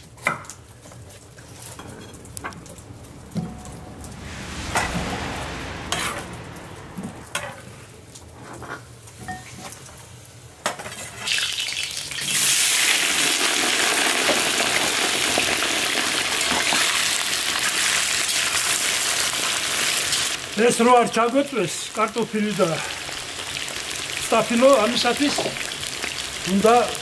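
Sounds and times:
loud oil sizzle: 1.2s - 27.0s.

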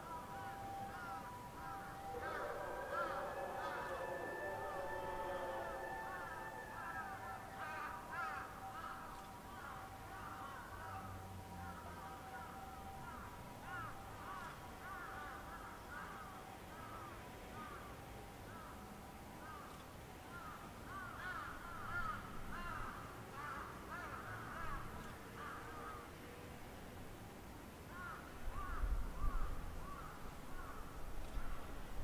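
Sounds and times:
crows cawing: 0.9s - 11.1s, 13.7s - 17.8s, 20.3s - 26.0s, 27.9s - 30.9s.

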